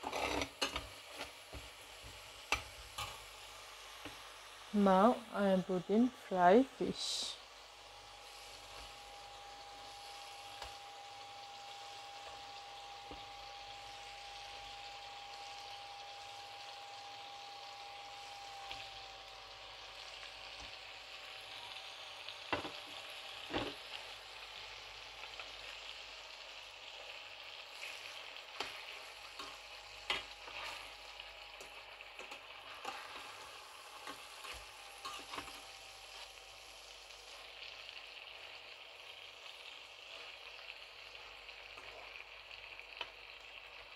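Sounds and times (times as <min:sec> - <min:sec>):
metal spatula scraping a pan: 0:00.0 - 0:01.7, 0:27.8 - 0:36.2
curry sizzling in a pan: 0:00.0 - 0:43.9
faint steady whine: 0:00.2 - 0:43.5.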